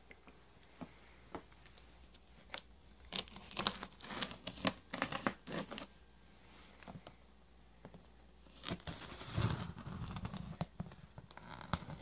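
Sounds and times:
plastic wrap crinkling and tearing: 0:02.4 - 0:05.9.

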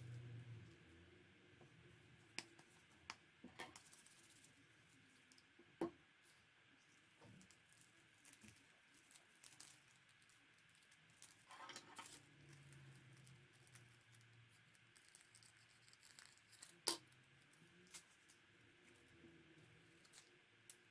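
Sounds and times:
tissue paper and cellophane crinkling: 0:07.4 - 0:16.8.

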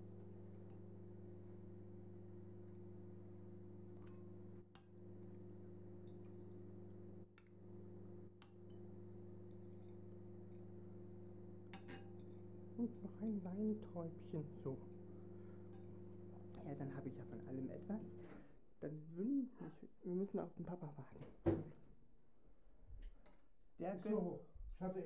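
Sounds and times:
steady low hum: 0:00.0 - 0:25.0
metal spoon clinking on glass bowls: 0:11.7 - 0:12.4.

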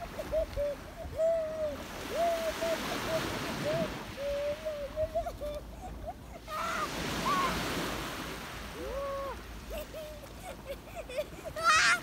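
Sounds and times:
faint high wavering calls: 0:00.0 - 0:05.9.

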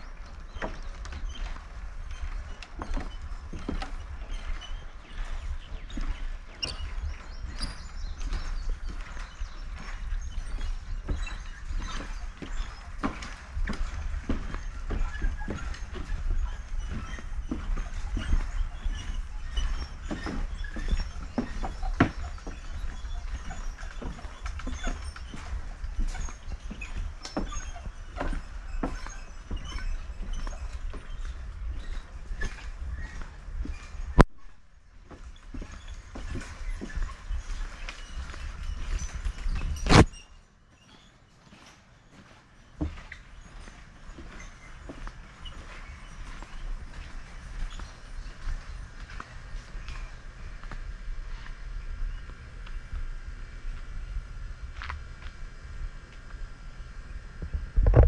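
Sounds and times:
wind rumble on microphone: 0:00.0 - 0:40.2, 0:44.4 - 0:58.0
short high squeaks: 0:00.0 - 0:48.5
footsteps on wooden planks: 0:00.0 - 0:55.6
steady low rumble: 0:44.7 - 0:58.0.

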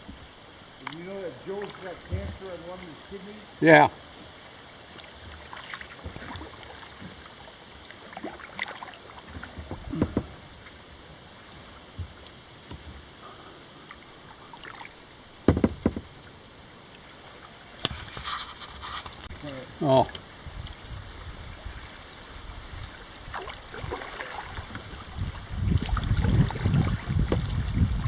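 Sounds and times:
faint rush of water: 0:00.0 - 0:28.0
paddle strokes splashing: 0:00.0 - 0:28.0
paddle knocking against kayak: 0:02.0 - 0:02.5, 0:08.6 - 0:10.7, 0:11.9 - 0:13.1, 0:15.4 - 0:16.2, 0:23.3 - 0:28.0.

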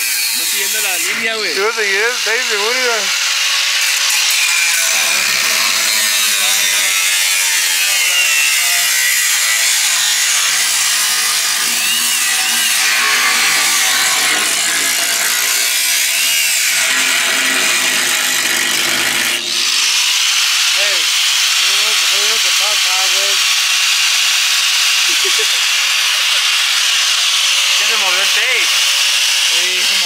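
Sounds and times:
angle grinder cutting metal: 0:00.0 - 0:30.0.

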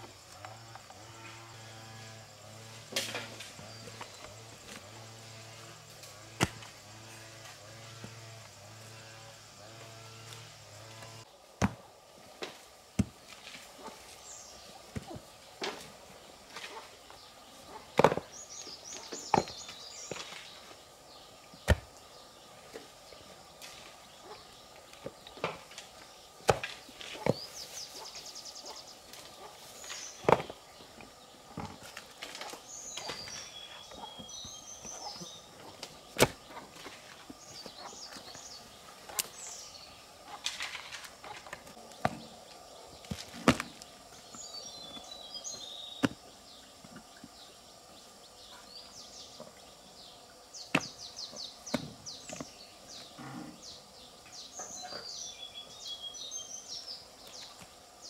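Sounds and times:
birds chirping in trills: 0:13.8 - 0:58.0.

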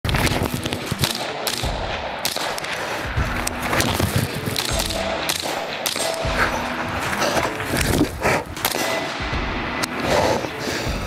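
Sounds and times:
music: 0:00.1 - 0:11.0
rifle shots: 0:00.2 - 0:06.8, 0:08.6 - 0:09.4.

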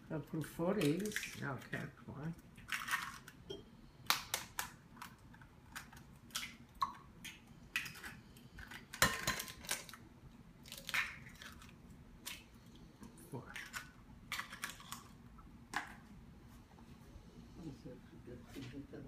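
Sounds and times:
eggshells cracking: 0:00.4 - 0:01.9, 0:02.5 - 0:03.4, 0:04.0 - 0:10.0, 0:10.6 - 0:16.0.

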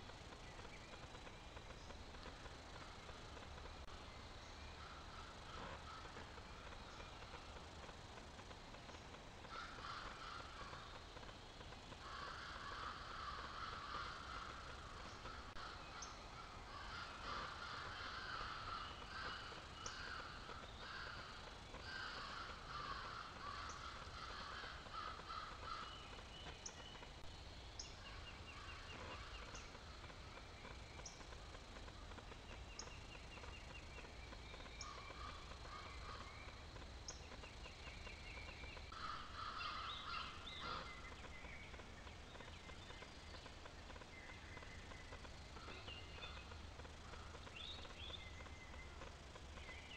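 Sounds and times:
crows cawing: 0:04.8 - 0:08.5, 0:09.4 - 0:26.3, 0:34.8 - 0:36.4, 0:38.9 - 0:41.0.

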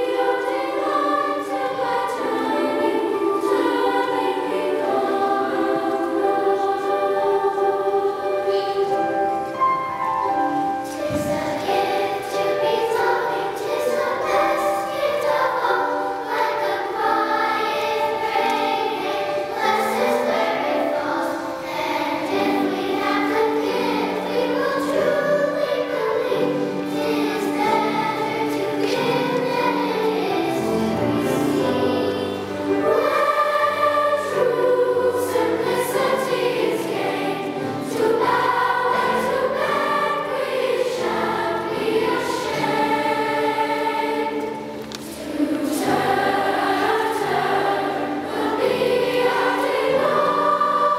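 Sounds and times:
children's choir singing: 0:00.0 - 0:50.9.

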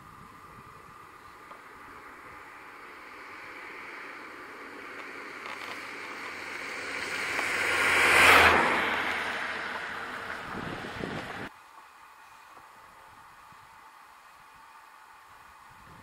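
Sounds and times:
low engine hum: 0:00.0 - 0:16.0
vehicle passing: 0:01.6 - 0:11.5.

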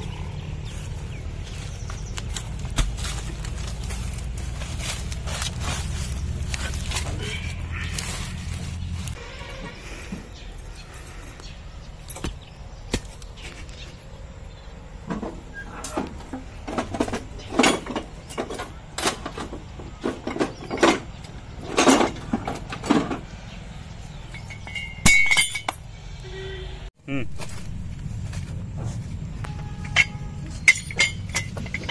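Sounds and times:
metal tools clanking: 0:15.0 - 0:23.3, 0:24.1 - 0:25.9, 0:29.4 - 0:31.9.

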